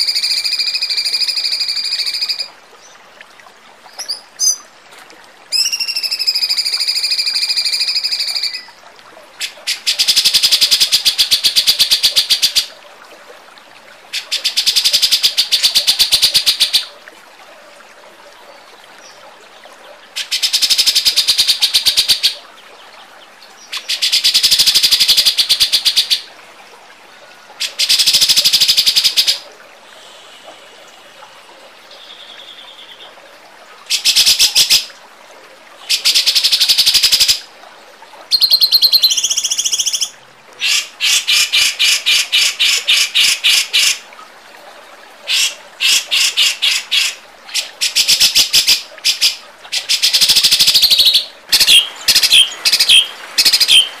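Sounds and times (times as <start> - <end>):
songbird fast trilled song: 38.3 - 40.1, 50.5 - 53.9.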